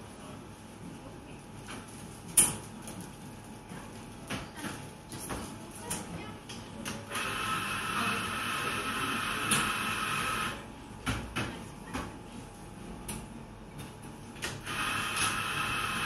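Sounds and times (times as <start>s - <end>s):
cafe machine whirring: 6.7s - 10.9s, 14.4s - 16.0s.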